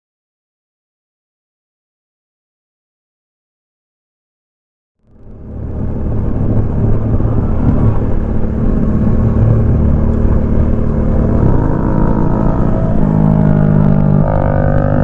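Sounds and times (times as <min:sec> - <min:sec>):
motorcycle engine running: 0:05.0 - 0:15.0
road noise: 0:05.0 - 0:15.0
wind noise: 0:05.1 - 0:15.0.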